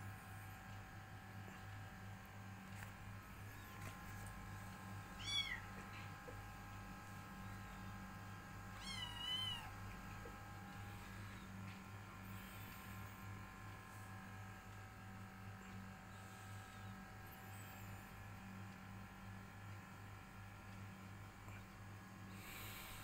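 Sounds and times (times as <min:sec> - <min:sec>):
steady low hum: 0:00.0 - 0:23.0
kittens meowing: 0:05.2 - 0:05.7, 0:08.8 - 0:09.7.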